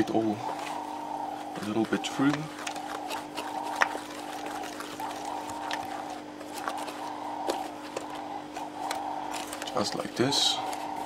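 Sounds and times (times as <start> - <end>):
steady low hum: 0.0 - 11.0
potting mix stirred and scraped: 1.5 - 11.0
stick clicking against tub: 1.7 - 5.9.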